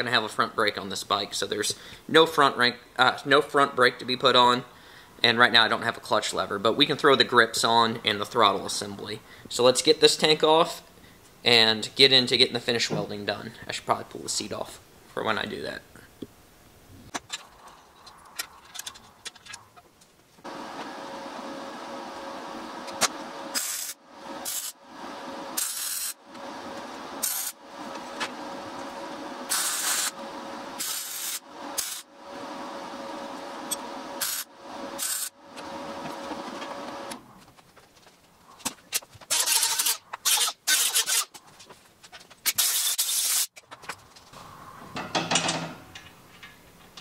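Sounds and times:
loud noisy strokes: 20.5 - 37.2
welding arc buzzing: 20.5 - 37.2, 39.3 - 41.4, 42.4 - 43.6
loud sizzling bursts: 23.4 - 26.2, 27.0 - 27.8, 28.5 - 35.4.

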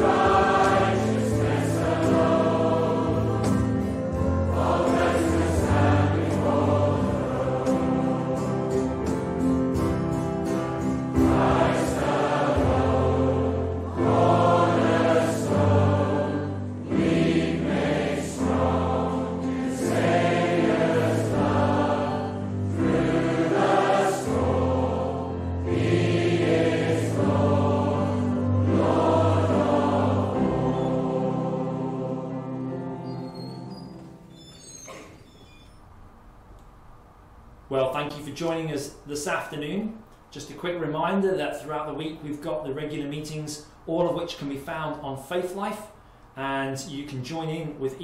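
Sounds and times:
group singing a hymn: 0.0 - 33.3.

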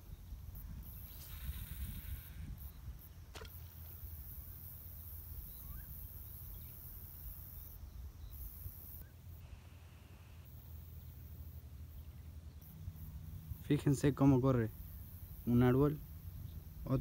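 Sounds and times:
faint bird chirps: 5.4 - 13.8.

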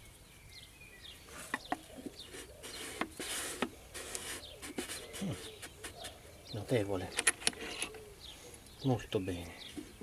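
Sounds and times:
rubber hose clicks and squeaks: 7.1 - 8.0.

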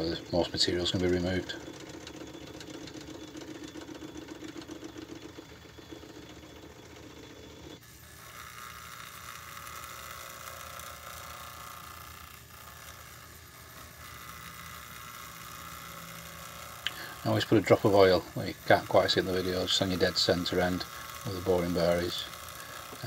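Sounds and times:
metal lathe running: 0.0 - 23.0.

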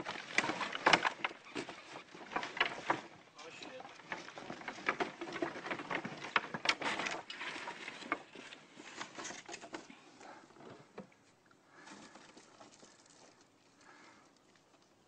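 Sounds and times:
wood boards knocking underfoot: 0.0 - 8.3.

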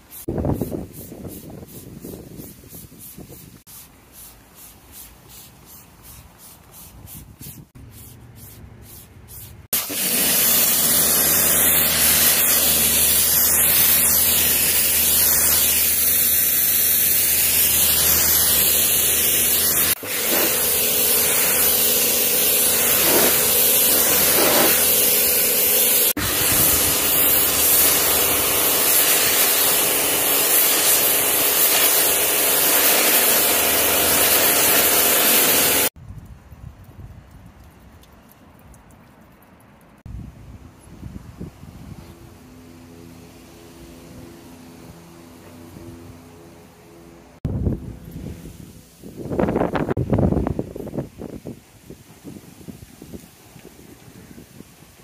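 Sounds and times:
pressure washer spraying: 0.0 - 36.0
motor humming low: 41.2 - 48.8.

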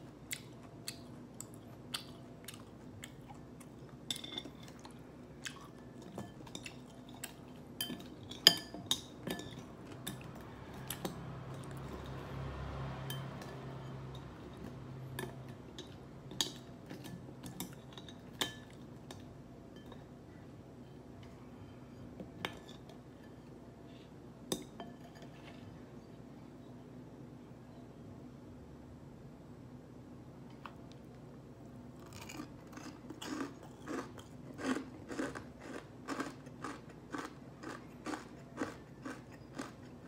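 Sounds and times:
chopsticks clinking on ceramic bowl: 6.0 - 10.4.

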